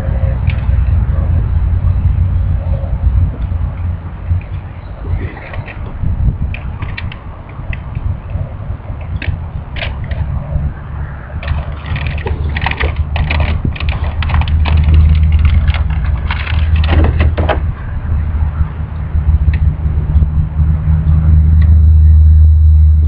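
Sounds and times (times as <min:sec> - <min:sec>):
low rumble: 0:00.0 - 0:23.0
cellophane wrapper crackling: 0:11.4 - 0:17.0.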